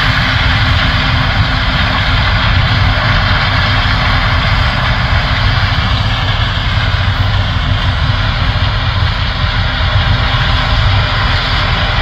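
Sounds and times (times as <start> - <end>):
combine harvester engine rumble: 0.0 - 12.0.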